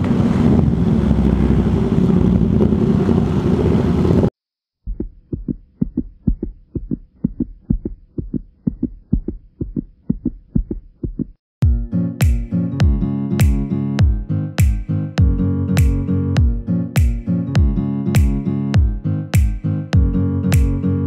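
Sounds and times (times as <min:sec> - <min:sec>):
motorcycle engine: 0:00.0 - 0:04.3
wind on microphone: 0:00.0 - 0:04.3
fast heartbeat thumping: 0:04.8 - 0:13.0
music: 0:11.6 - 0:21.0.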